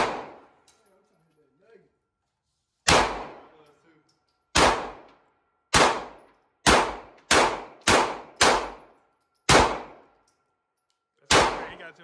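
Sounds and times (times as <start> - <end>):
gunshots: 0.0 - 0.5, 2.9 - 3.6, 4.5 - 8.9, 9.5 - 10.0, 11.3 - 11.9.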